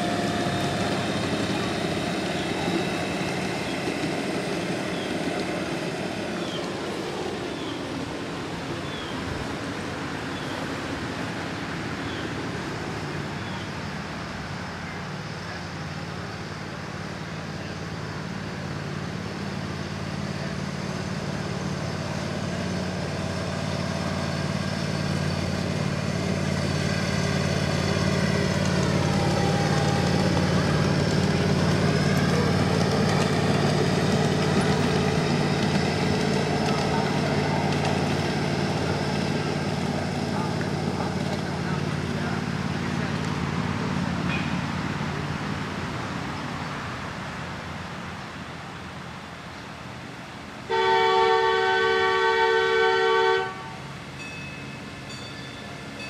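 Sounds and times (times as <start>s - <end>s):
small train engine passing: 0.0s - 56.0s.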